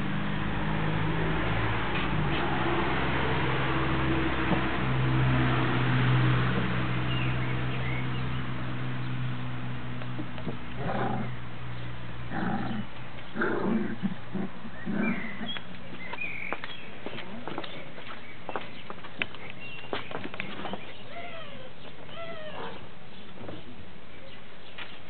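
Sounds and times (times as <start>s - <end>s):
puppies play-growling and grunting: 10.4s - 11.4s, 12.3s - 15.6s.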